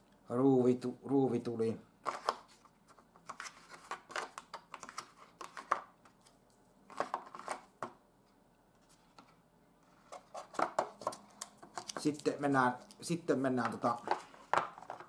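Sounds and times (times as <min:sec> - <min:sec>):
light clicks and rustles of packaging: 0:10.0 - 0:15.0.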